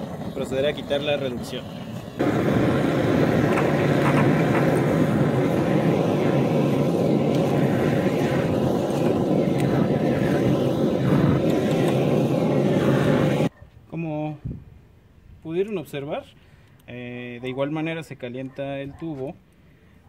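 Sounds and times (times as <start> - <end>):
gas torch burning: 0.0 - 13.5.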